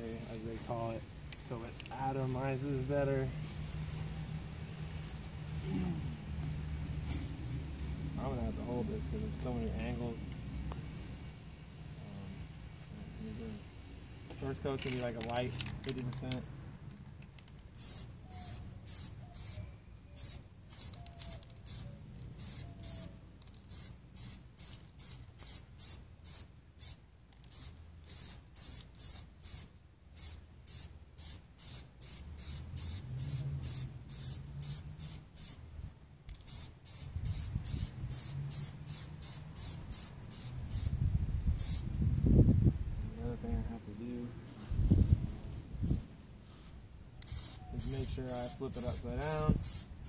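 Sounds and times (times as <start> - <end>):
aerosol can spraying: 17.7 - 19.6, 20.2 - 35.6, 36.3 - 41.0, 41.6 - 41.9, 47.2 - 50.0.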